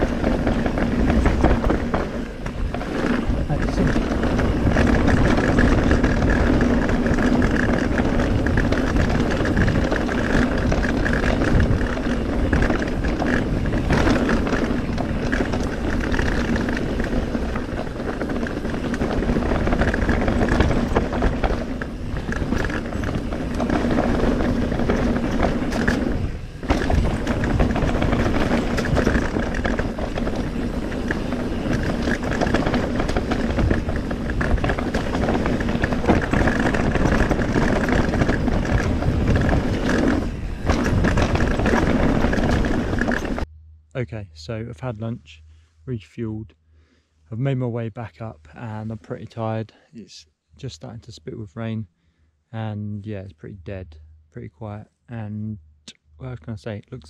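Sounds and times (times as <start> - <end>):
bike tyre roar and rattling: 0.0 - 43.5.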